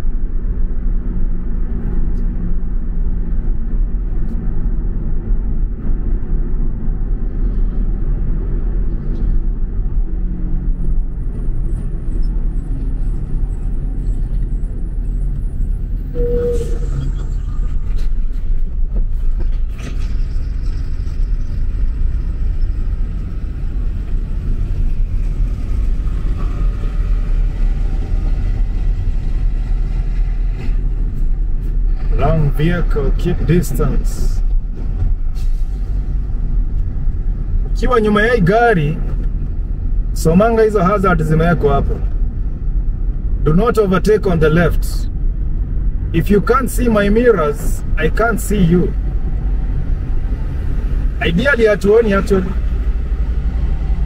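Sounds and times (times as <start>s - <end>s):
car cabin road rumble: 0.0s - 54.0s
short tone: 16.0s - 18.1s.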